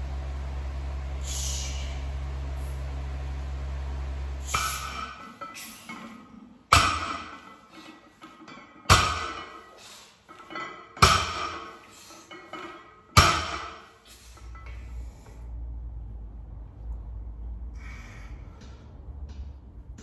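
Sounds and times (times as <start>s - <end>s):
barbell plates clanking on floor: 4.5s - 9.7s, 10.3s - 13.9s.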